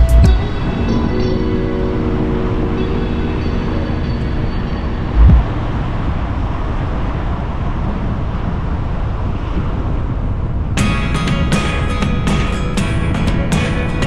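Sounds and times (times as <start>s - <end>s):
car road and wind noise: 0.0s - 14.0s
loud low thump: 5.2s - 5.5s.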